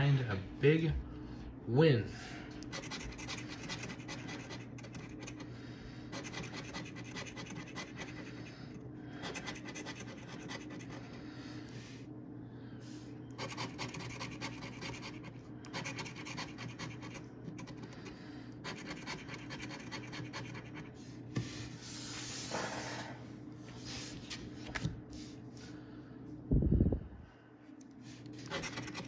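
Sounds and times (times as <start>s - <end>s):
coin scratching lottery ticket: 2.7s - 5.4s, 6.2s - 8.4s, 9.3s - 11.0s, 13.4s - 17.9s, 18.6s - 20.9s, 28.4s - 29.0s.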